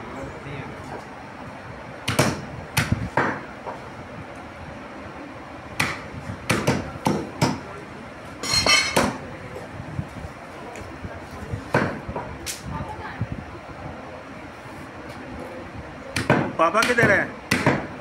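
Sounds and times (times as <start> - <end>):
cleaver chopping bones on wood: 2.1 - 3.4, 5.8 - 7.6, 16.2 - 17.9.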